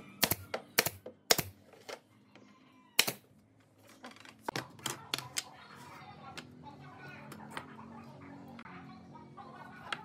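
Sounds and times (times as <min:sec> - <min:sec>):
nail gun firing: 0:00.2 - 0:01.6.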